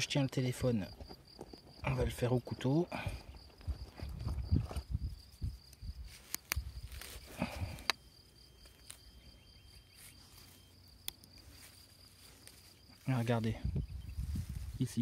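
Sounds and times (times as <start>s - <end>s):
crickets chirping: 0.0s - 15.0s
knife digging into soil: 6.1s - 8.0s
sharp clicks: 6.2s - 6.8s.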